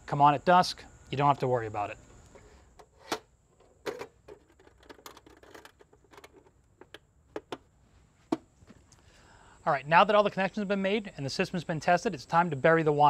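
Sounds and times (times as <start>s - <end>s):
metal box cover clicks and knocks: 2.8s - 7.7s.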